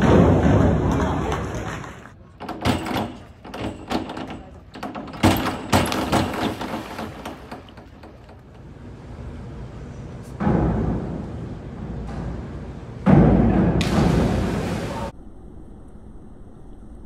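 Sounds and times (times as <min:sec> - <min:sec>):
sharp knocks and thumps: 0:00.0 - 0:08.6, 0:10.4 - 0:14.6
diver splashing into pool: 0:13.8 - 0:15.1.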